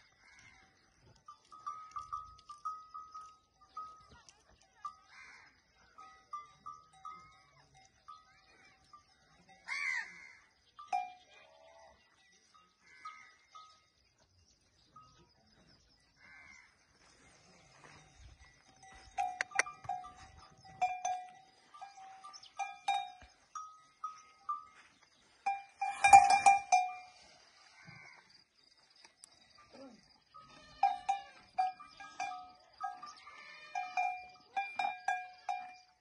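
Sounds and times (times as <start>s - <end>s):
metal bell clanking: 25.4s - 27.2s.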